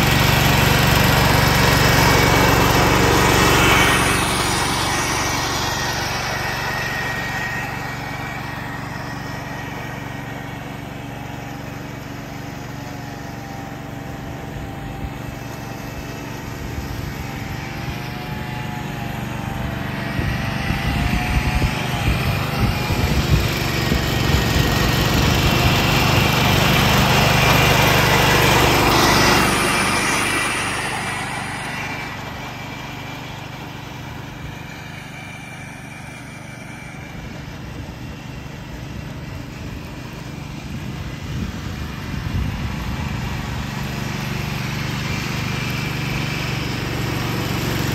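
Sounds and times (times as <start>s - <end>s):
garden tractor engine running: 0.0s - 47.9s
mower deck chopping dry leaves: 0.0s - 47.9s.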